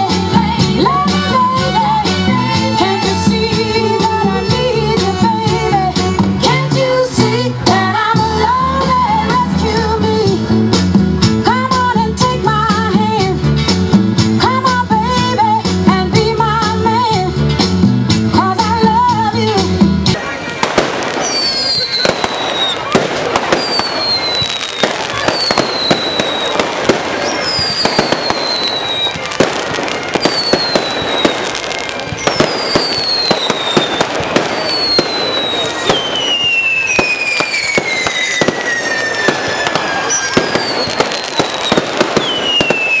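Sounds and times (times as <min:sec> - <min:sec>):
fireworks bangs and crackles: 0:00.0 - 0:17.3, 0:18.1 - 0:43.0
whistling fireworks: 0:20.2 - 0:43.0.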